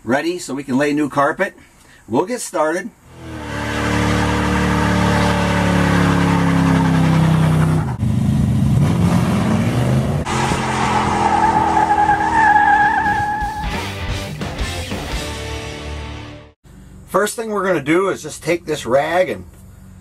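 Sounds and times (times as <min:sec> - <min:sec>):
engine revving hard: 0:03.1 - 0:08.1, 0:08.8 - 0:13.8
tyres squealing: 0:10.3 - 0:13.8.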